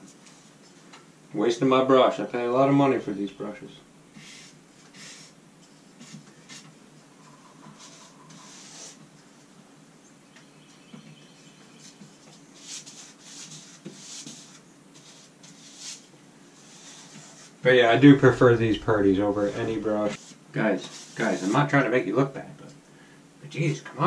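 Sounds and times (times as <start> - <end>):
paintbrush swishing on wall: 6.0 - 9.2, 11.8 - 17.6, 19.1 - 21.6.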